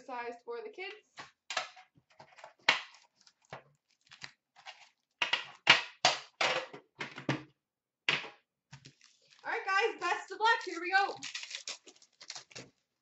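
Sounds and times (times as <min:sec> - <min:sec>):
card pack wrappers crinkling: 0:02.8 - 0:05.6, 0:08.8 - 0:13.0.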